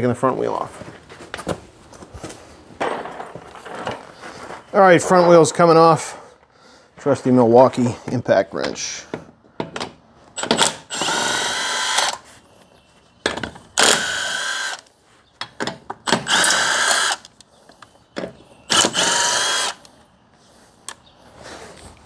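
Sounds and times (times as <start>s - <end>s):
impact wrench spinning lug nuts: 10.4s - 12.2s, 16.1s - 17.3s.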